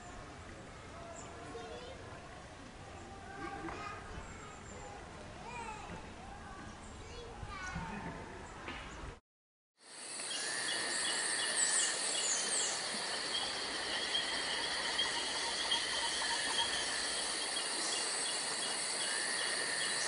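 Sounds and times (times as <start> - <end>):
insects chirping: 9.8 - 20.0
high bird calls: 10.3 - 20.0.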